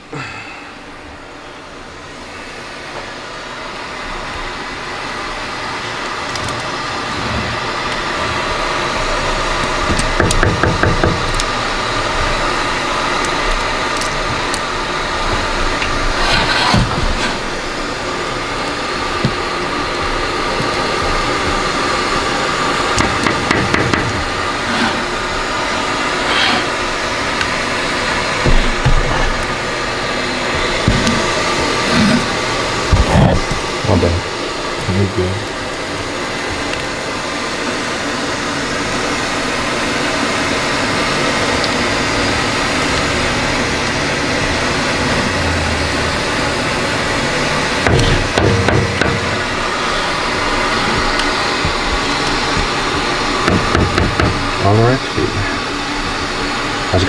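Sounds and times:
machine hum: 0.0s - 57.0s
spatula scraping metal: 16.1s - 17.6s, 24.4s - 25.4s, 26.1s - 27.0s.

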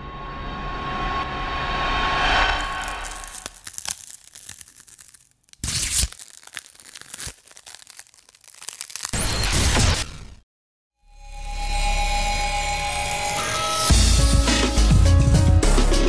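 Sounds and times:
crackle of clicks and scratches: 2.6s - 10.3s.

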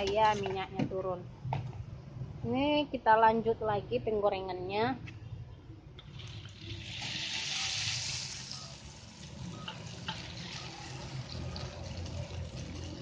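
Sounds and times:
cracker sizzling in hot oil: 6.1s - 13.0s.

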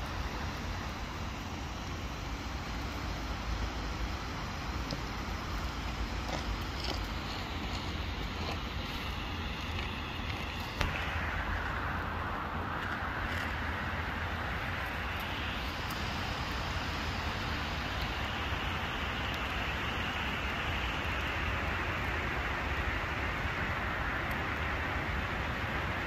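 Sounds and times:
even hiss: 0.0s - 26.0s.

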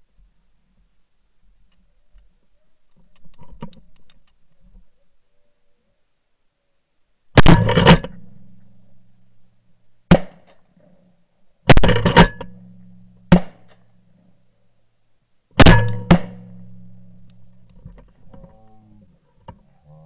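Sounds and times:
shotgun shots: 7.4s - 8.2s, 10.1s - 10.5s, 11.7s - 12.6s, 13.3s - 13.8s, 15.6s - 17.0s.

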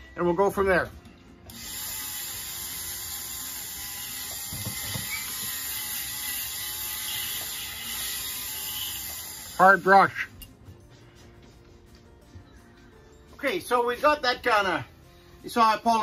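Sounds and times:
rotary tool whirring: 1.5s - 9.7s.

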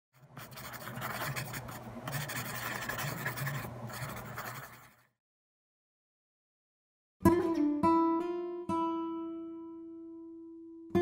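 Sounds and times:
pencil scratching on paper: 0.2s - 5.2s.

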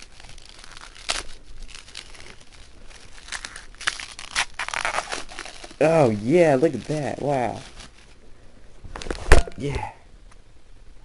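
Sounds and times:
packaging crinkling and tearing: 0.0s - 8.2s.

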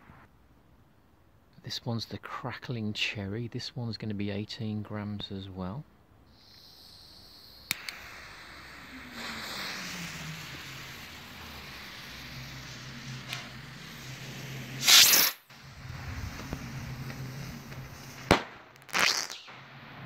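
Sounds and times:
firework fuse hissing: 6.3s - 20.0s
sharp clicks: 7.7s - 8.0s
rocket launch whoosh: 7.7s - 20.0s.

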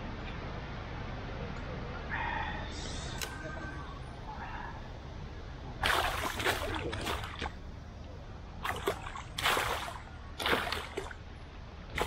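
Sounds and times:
fish splashing in water: 5.8s - 7.6s, 8.6s - 11.2s.

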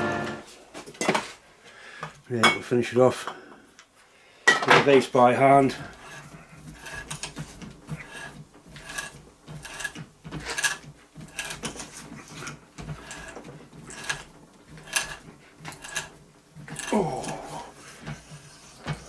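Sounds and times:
tap wrench scraping metal: 5.8s - 16.2s.

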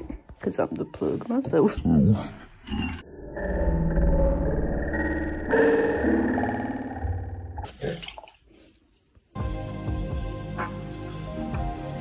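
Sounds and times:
background music with bass: 9.4s - 12.0s.

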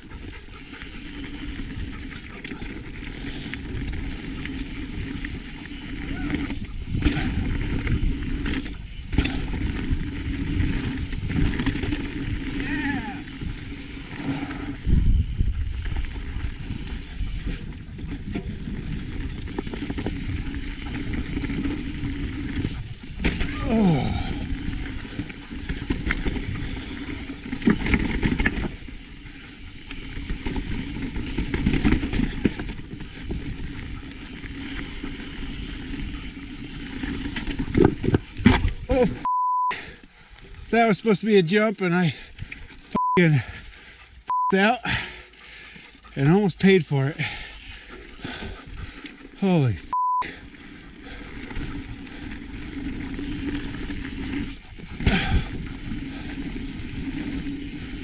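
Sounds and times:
tyres rumbling on dirt: 0.0s - 39.3s, 40.5s - 58.0s
wind rushing on camera: 0.0s - 39.3s, 50.6s - 58.0s
bike clicking and rattling: 0.0s - 58.0s
bike knocking over bumps: 23.1s - 23.6s.

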